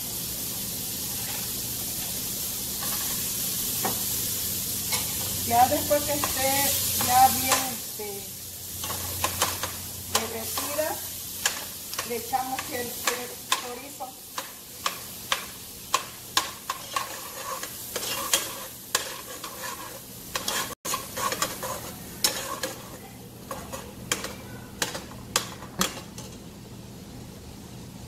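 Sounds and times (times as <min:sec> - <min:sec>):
butter sizzling: 0:00.0 - 0:28.0.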